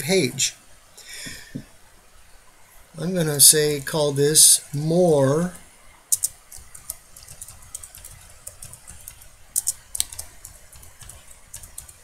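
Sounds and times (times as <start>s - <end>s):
typing on computer keyboard: 6.1s - 12.0s.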